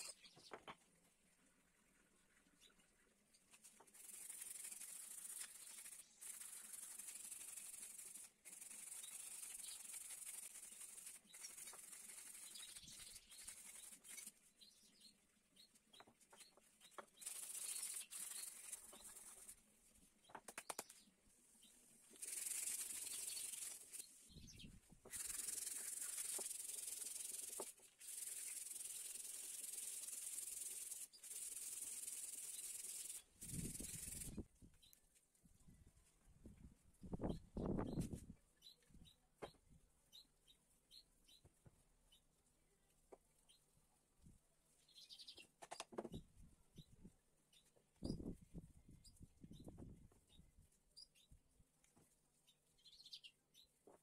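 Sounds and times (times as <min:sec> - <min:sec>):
sandpaper scratching wood: 0:03.9 - 0:14.4, 0:17.2 - 0:19.6, 0:22.2 - 0:24.0, 0:25.1 - 0:34.4.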